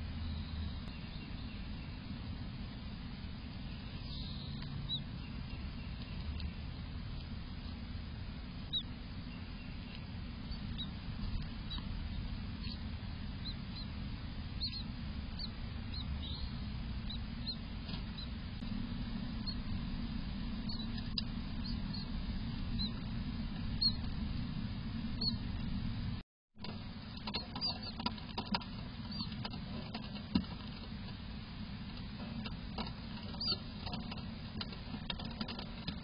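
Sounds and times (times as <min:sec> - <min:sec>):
nestlings giving squeaky begging peeps: 0:04.0 - 0:06.5, 0:08.6 - 0:18.4, 0:19.4 - 0:19.7, 0:20.6 - 0:23.1, 0:23.7 - 0:24.1, 0:25.2 - 0:25.5, 0:27.4 - 0:28.0, 0:29.0 - 0:29.4, 0:33.3 - 0:34.1.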